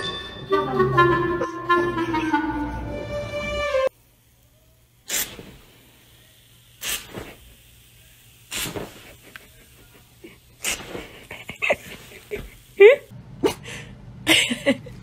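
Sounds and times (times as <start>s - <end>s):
aerosol foam can hissing squirts: 5.0s - 5.8s, 6.7s - 7.8s, 8.4s - 9.6s.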